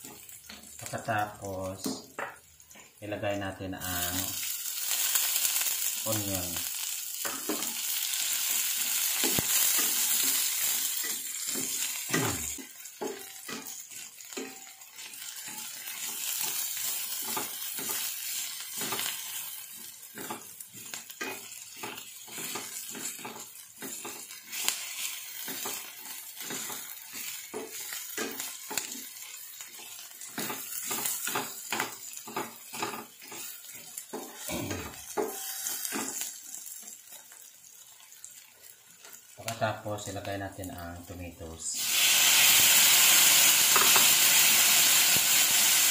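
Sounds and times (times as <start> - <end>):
onion sizzling in hot oil: 0.0 - 45.9
wooden spatula scraping a pan: 8.5 - 36.9.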